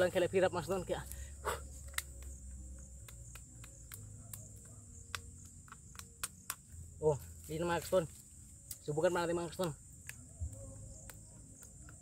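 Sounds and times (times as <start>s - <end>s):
insects droning: 0.0s - 12.0s
plastic strap clicking and crinkling: 1.7s - 6.6s.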